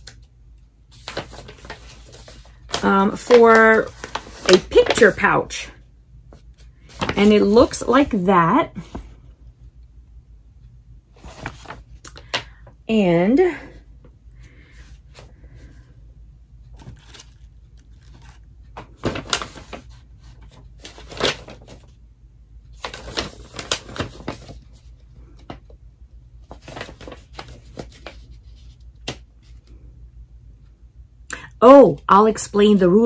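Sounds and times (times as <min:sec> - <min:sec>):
packets rustling and clicking: 0:00.9 - 0:05.3, 0:06.4 - 0:07.9, 0:16.8 - 0:22.0, 0:22.8 - 0:25.7, 0:26.5 - 0:29.6.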